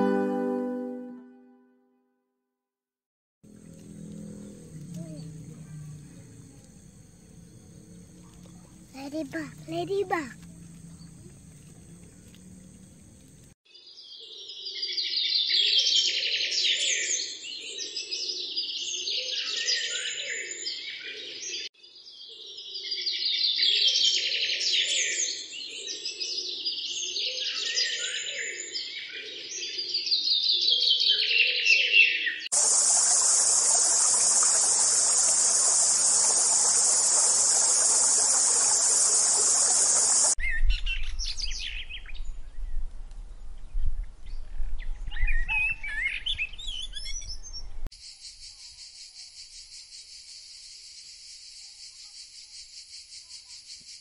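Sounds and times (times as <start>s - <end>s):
high insect drone: 3.5s - 13.6s, 32.5s - 40.4s
birds singing and chirping: 9.8s - 42.8s, 43.4s - 48.8s.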